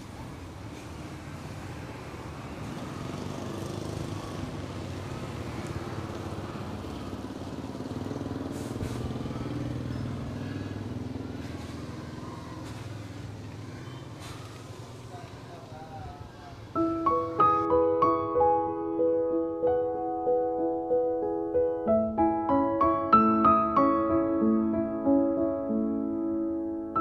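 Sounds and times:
vehicle engine passing: 0.0s - 18.3s.

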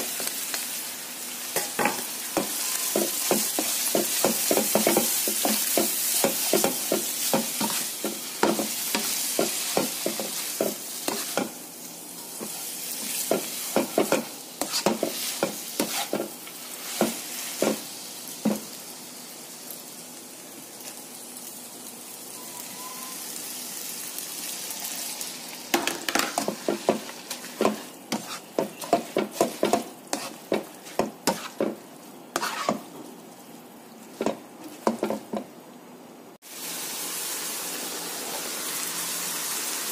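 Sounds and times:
noodles sizzling in a wok: 0.0s - 35.6s, 36.3s - 39.9s
spatula scraping and clacking on pan: 1.6s - 11.6s, 12.4s - 17.8s, 25.8s - 32.9s, 34.2s - 35.5s.

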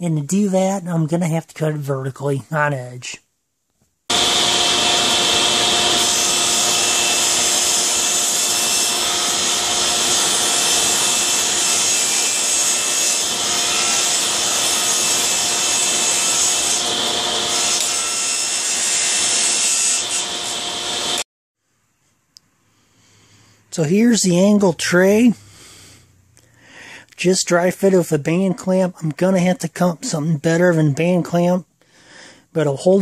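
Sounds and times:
saw cutting wood: 4.1s - 21.2s
table saw blade whine: 4.1s - 21.2s.

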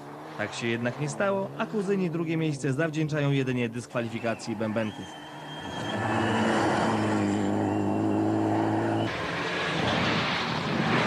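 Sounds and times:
rally car engine at high revs: 0.0s - 2.7s, 5.1s - 11.0s
road noise: 0.0s - 11.0s
rough noisy car engine: 4.0s - 11.0s.

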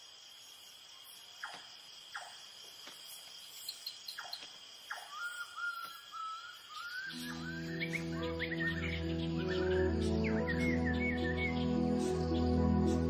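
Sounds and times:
crickets and insects droning: 0.0s - 13.0s
thin wavering call: 6.2s - 13.0s.

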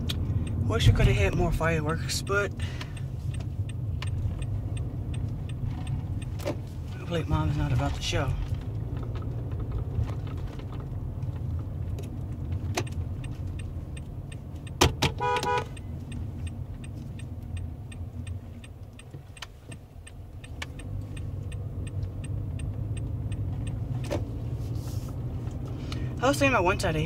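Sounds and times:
faint regular ticking: 0.0s - 9.2s, 10.9s - 24.5s
car engine and road noise: 0.0s - 27.0s.

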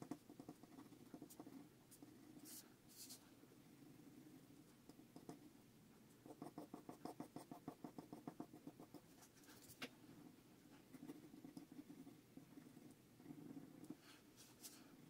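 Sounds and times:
pencil scratching on paper: 0.0s - 3.2s, 6.2s - 9.8s, 10.7s - 15.0s.

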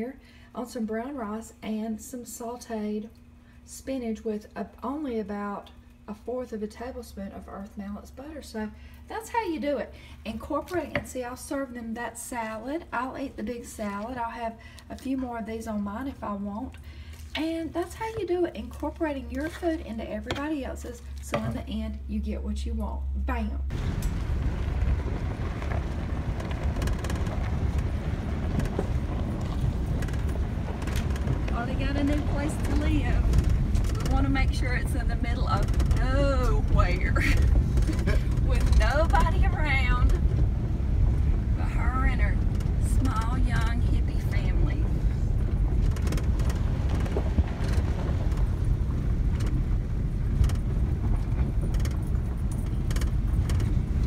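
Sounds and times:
engine and tyre rumble: 23.7s - 54.0s
wind on microphone: 23.7s - 54.0s
light knocks and rattles: 25.7s - 40.6s, 44.7s - 54.0s.

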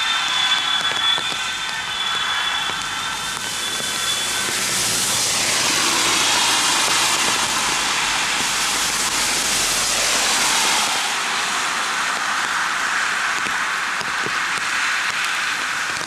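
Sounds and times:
falling rain: 0.0s - 16.0s
tyres hissing on wet road: 0.0s - 16.0s.

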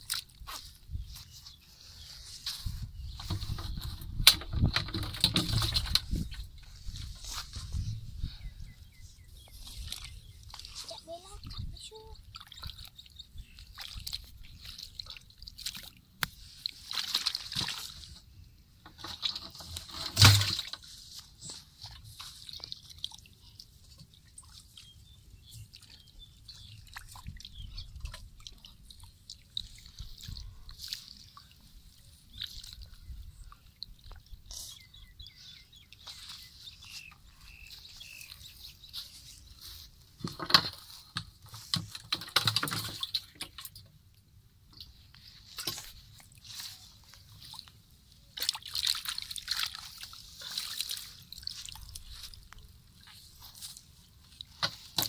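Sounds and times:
muddy water sloshing and splashing: 0.0s - 55.0s.

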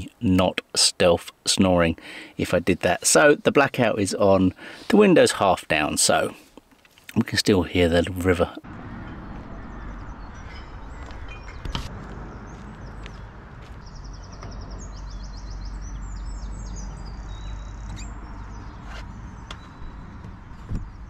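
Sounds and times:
small birds chirping: 1.8s - 7.3s, 8.0s - 21.0s
low rumble: 8.6s - 21.0s
high bird trill: 8.8s - 21.0s.

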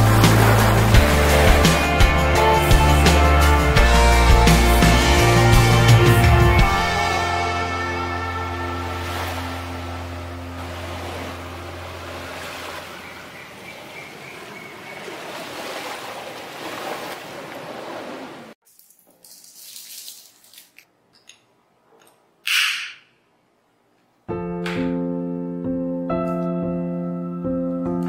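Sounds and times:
sea waves on a shore: 0.0s - 3.8s, 6.9s - 18.6s
piano music: 0.0s - 13.2s, 24.3s - 28.0s
soft music: 0.0s - 13.3s, 24.3s - 28.0s.

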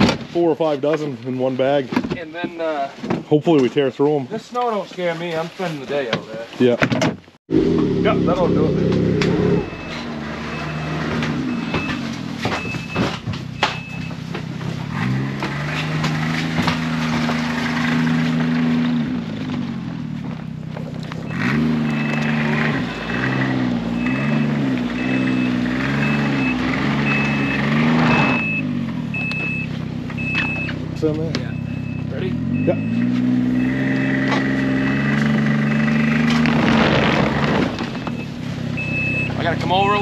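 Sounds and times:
snowmobile engines revving: 7.5s - 12.1s, 14.9s - 20.0s, 21.0s - 29.6s, 30.2s - 40.0s
reverse warning beeper: 8.0s - 14.2s, 21.2s - 30.8s, 31.4s - 36.2s, 37.9s - 40.0s.

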